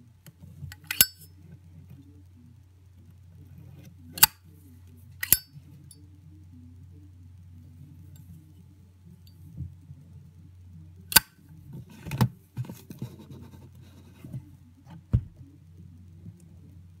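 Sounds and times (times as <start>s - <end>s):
lighter lid clicking: 0.8s - 1.1s, 5.2s - 5.4s
handling noise: 11.6s - 15.6s.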